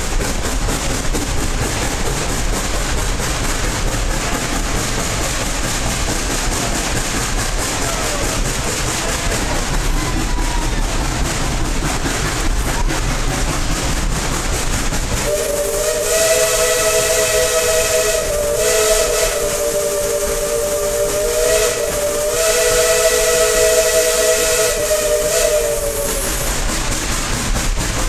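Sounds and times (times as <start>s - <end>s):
steam hissing: 0.0s - 28.0s
steam locomotive whistle: 15.2s - 26.6s.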